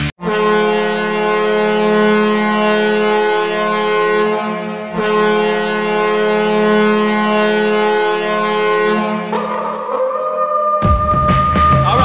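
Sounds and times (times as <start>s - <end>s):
arena goal horn blast: 0.2s - 12.0s.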